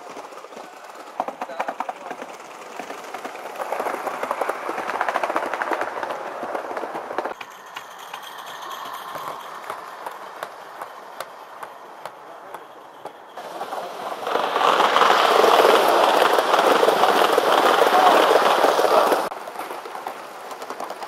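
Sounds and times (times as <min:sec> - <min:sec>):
model train wheels clattering: 0:00.0 - 0:21.0.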